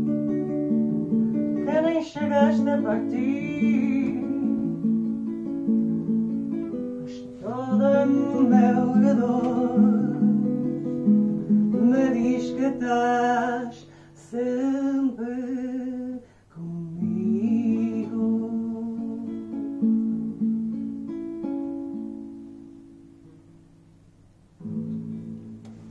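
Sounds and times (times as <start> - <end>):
acoustic guitar accompaniment: 0.0 - 25.9
person singing wavering phrases: 1.6 - 4.7, 7.1 - 10.6.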